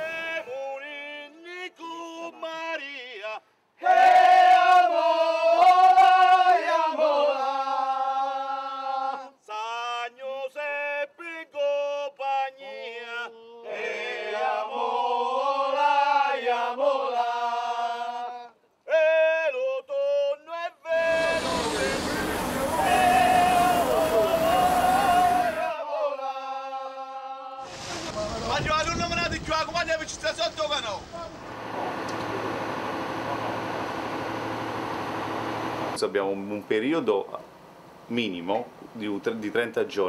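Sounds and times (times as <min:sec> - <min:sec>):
men and women singing in chorus: 0:03.8 - 0:10.2, 0:11.6 - 0:20.2, 0:20.9 - 0:28.2.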